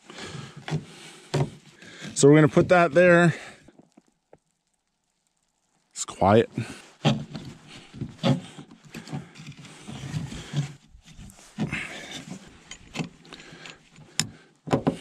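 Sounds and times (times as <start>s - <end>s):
jacket rustling: 6.7s - 14.0s
cord scraping and rustling: 6.8s - 15.0s.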